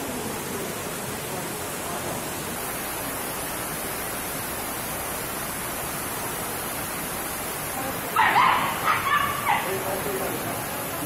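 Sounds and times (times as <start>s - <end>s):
steady rain hiss: 0.0s - 11.0s.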